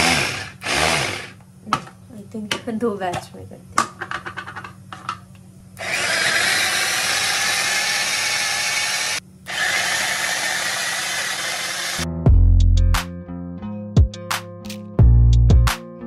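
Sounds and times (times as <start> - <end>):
electric food chopper motor: 0.0 - 1.4, 5.8 - 12.0
music with deep bass: 12.0 - 16.0.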